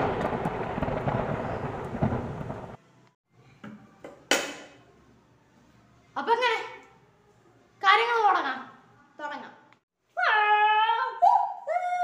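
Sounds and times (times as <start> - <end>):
thunder rumbling: 0.0 - 2.8.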